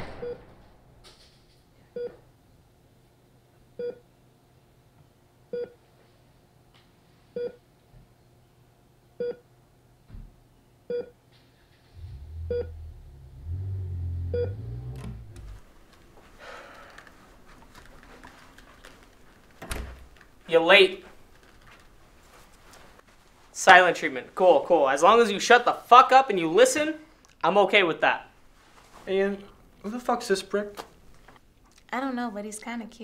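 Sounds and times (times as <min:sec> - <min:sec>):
deep low drone: 0:11.9 - 0:15.6
short electronic beep: 0:12.1 - 0:12.9, 0:14.3 - 0:14.6.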